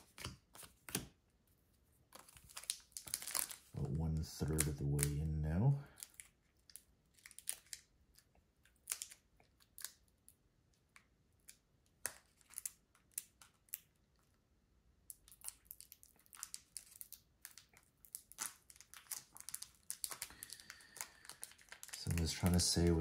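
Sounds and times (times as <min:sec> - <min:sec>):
cards being handled: 0:00.0 - 0:01.2
foil wrapper crinkling: 0:02.1 - 0:03.8, 0:05.9 - 0:07.9, 0:12.0 - 0:13.8, 0:15.2 - 0:23.0.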